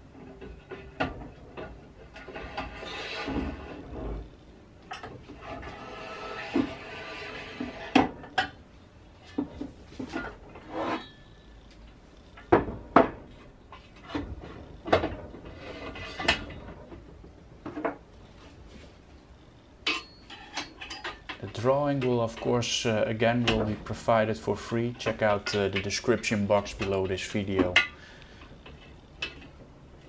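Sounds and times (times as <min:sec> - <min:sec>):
metallic clacks of aluminium profiles: 0:19.8 - 0:30.0.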